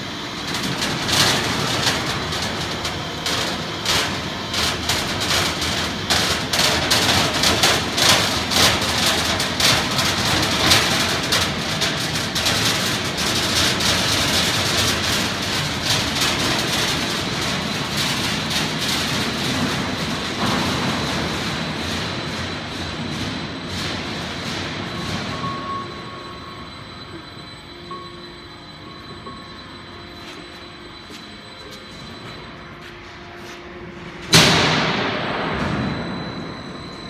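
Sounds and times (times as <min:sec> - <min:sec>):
roll forming machine clattering: 0:00.0 - 0:27.7.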